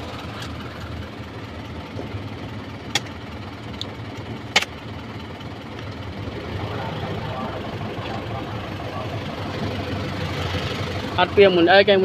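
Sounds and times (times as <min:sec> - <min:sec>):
diesel engine idling: 0:00.0 - 0:12.0
sharp clicks: 0:03.8 - 0:04.8.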